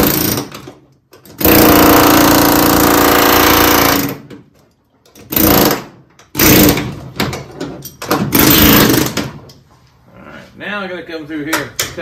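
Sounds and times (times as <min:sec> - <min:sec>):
pneumatic air hammer chiselling metal: 0:05.2 - 0:07.0, 0:08.1 - 0:09.3.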